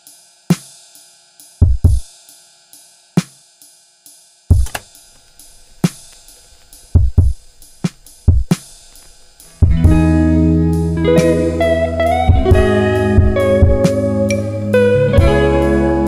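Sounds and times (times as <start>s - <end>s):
hi-hat: 0.0s - 15.4s
kick drum: 1.6s - 2.1s, 4.5s - 4.8s, 6.8s - 10.1s, 12.3s - 13.9s.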